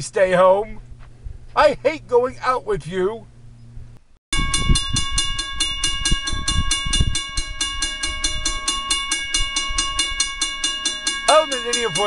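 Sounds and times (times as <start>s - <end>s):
low rumbling: 0.0s - 12.0s
railroad crossing bell ringing: 4.3s - 12.0s.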